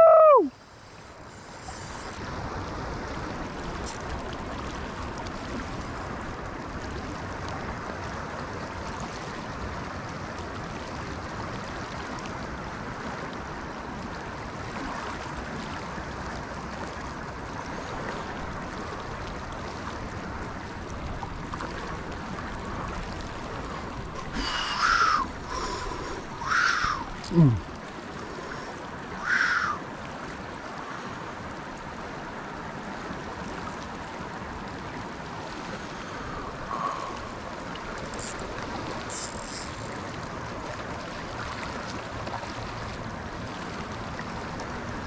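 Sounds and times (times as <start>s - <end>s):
river current rushing: 0.0s - 45.0s.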